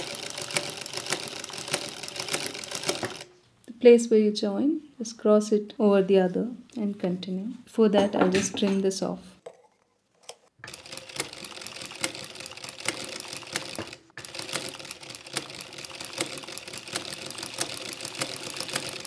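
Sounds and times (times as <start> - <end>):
sewing machine clicking and humming: 0.0 - 3.3, 10.6 - 19.0.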